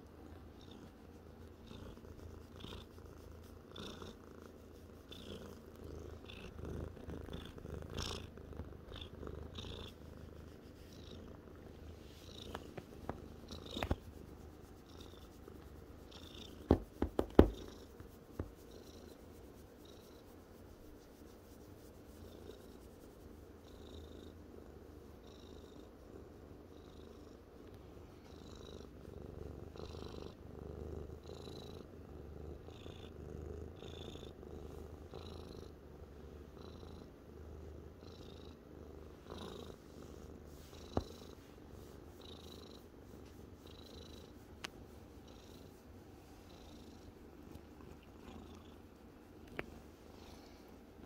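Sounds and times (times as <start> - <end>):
cat purring: 0.0 - 51.0.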